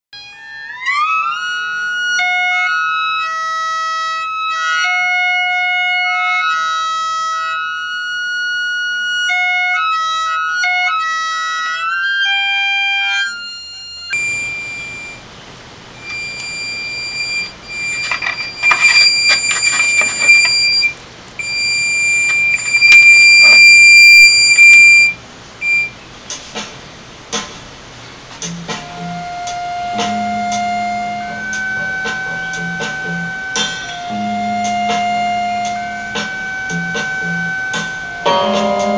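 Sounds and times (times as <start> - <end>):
steady electronic tones: 13.3 - 26.2, 28.4 - 38.9
speaker buzzing against wood: 14.1 - 15.2, 16.0 - 26.0, 28.4 - 38.9.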